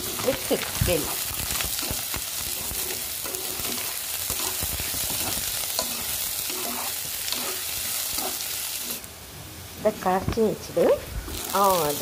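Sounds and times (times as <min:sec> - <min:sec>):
spatula scraping a pan: 0:00.0 - 0:09.1
onion sizzling in oil: 0:00.0 - 0:12.0.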